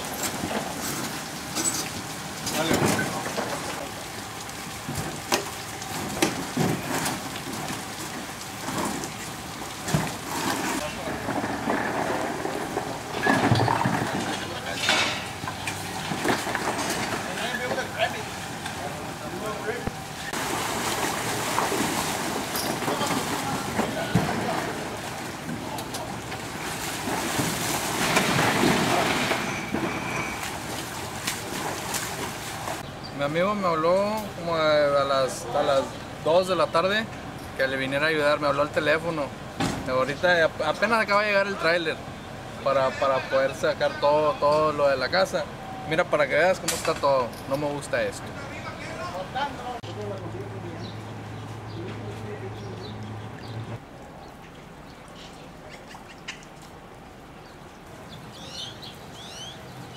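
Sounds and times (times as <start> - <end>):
water sloshing around wading legs: 0.0 - 32.8, 50.9 - 59.9
rain hissing: 0.0 - 32.9.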